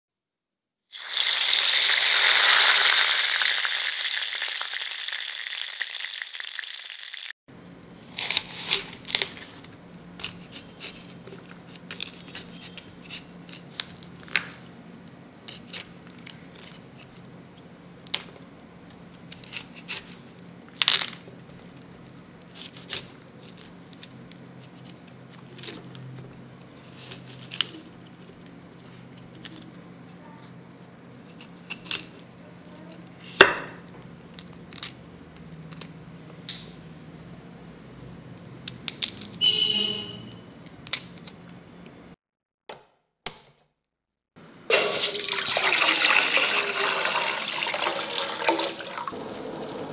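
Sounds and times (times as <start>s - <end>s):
oil sizzling: 0.9s - 7.4s, 44.7s - 49.9s
knife cutting cauliflower: 8.0s - 13.8s.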